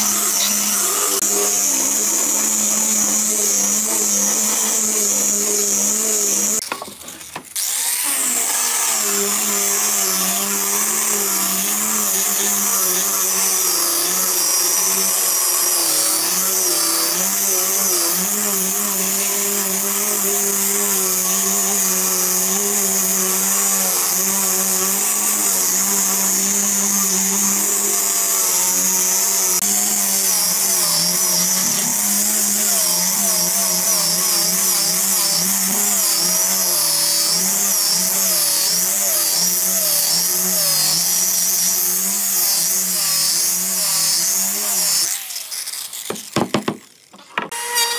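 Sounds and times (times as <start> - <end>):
angle grinder sanding wood: 0.0 - 47.9.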